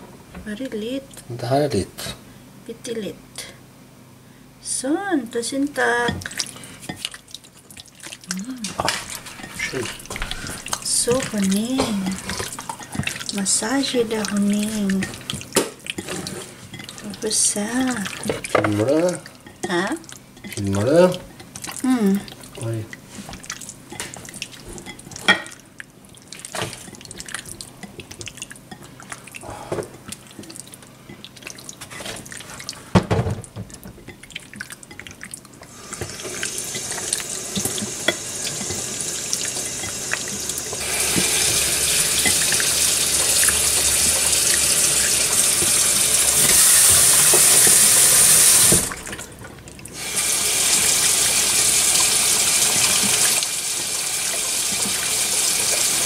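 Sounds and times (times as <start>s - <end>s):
tap water running: 5.8s - 25.6s, 26.3s - 56.0s
hand kneading wet chicken: 6.2s - 32.9s.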